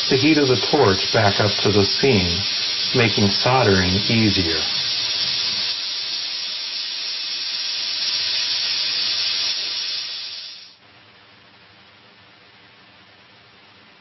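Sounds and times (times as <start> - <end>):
soldering torch hissing: 0.0 - 10.8.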